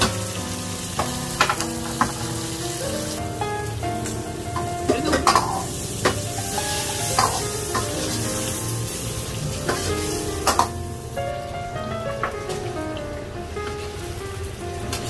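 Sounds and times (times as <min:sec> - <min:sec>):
food sizzling in a pan: 0:00.0 - 0:11.2.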